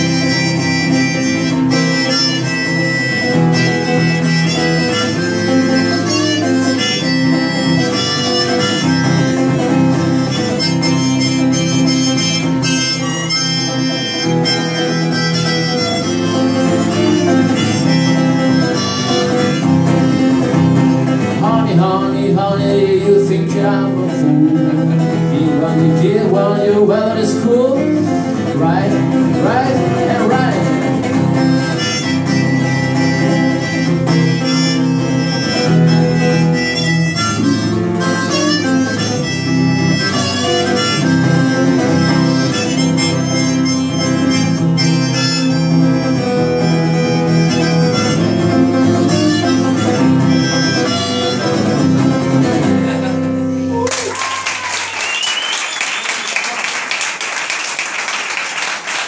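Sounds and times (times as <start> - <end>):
harmonica playing: 0.0 - 21.9, 27.8 - 53.8
acoustic guitar strumming: 0.0 - 53.8
audience applause: 53.8 - 59.0.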